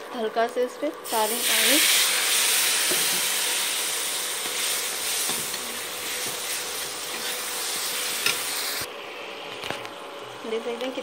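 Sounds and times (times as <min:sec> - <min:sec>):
water sizzling in hot oil: 0:01.0 - 0:08.9.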